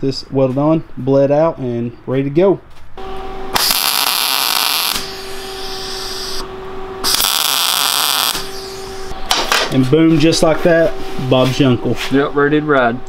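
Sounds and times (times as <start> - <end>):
steady welder hum: 3.0 - 13.0
welding arc crackling: 3.5 - 6.4, 7.0 - 9.2.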